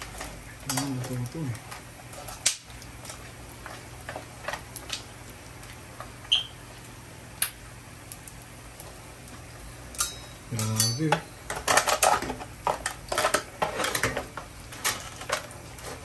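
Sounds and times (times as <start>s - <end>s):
oil sizzling: 0.0s - 16.0s
pops and crackles of frying: 0.0s - 16.0s.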